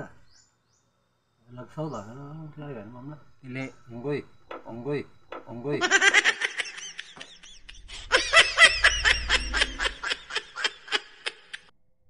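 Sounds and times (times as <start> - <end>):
people laughing: 5.8 - 11.7.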